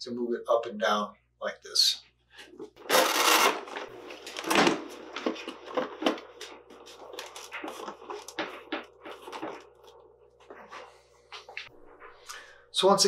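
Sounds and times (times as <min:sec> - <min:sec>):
velcro peeling rasp: 0:02.9 - 0:03.6.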